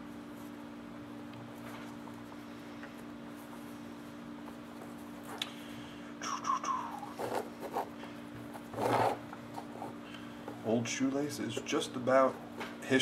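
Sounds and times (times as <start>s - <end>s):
lace scraping through leather: 8.6s - 9.9s.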